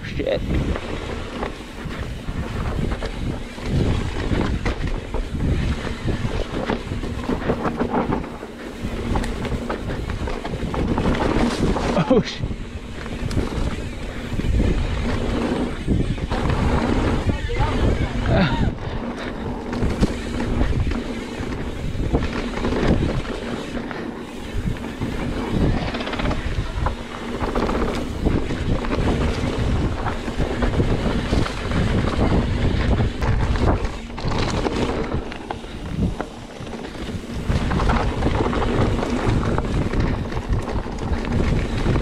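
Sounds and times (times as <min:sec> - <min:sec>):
bike knocking and rattling: 0:00.0 - 0:42.0
tyres rumbling on dirt: 0:00.0 - 0:42.0
wind buffeting microphone: 0:00.0 - 0:42.0.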